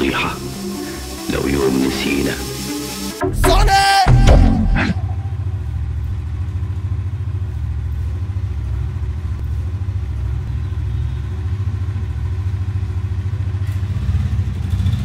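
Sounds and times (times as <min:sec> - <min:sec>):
motorcycle engine idling: 0:05.2 - 0:15.0.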